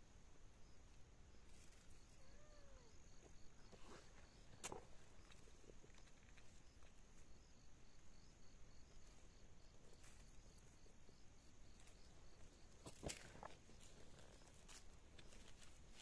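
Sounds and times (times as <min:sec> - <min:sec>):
insects chirping: 0:00.0 - 0:16.0
hands rustling in soil: 0:08.9 - 0:16.0.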